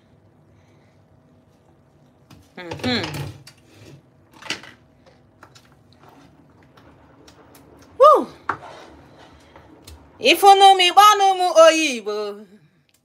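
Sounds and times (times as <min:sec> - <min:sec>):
utensil scraping pot: 0:05.9 - 0:11.2.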